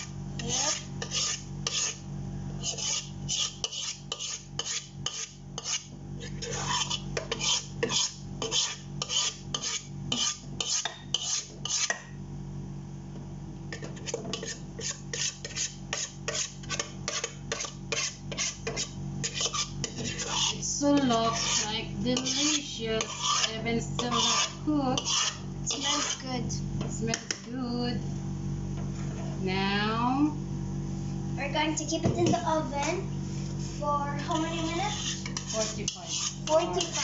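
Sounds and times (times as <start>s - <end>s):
spoon scraping metal bowl: 0.0s - 2.0s, 2.6s - 12.0s, 13.7s - 26.3s, 34.2s - 37.0s.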